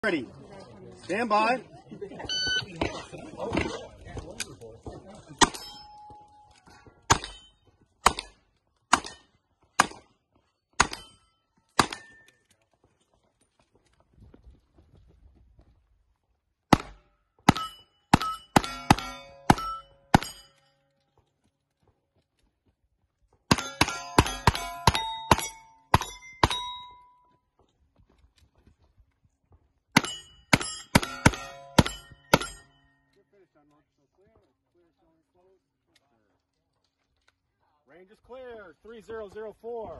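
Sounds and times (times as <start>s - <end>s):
steel target ringing: 17.5s - 20.7s, 23.5s - 27.2s, 30.0s - 33.1s.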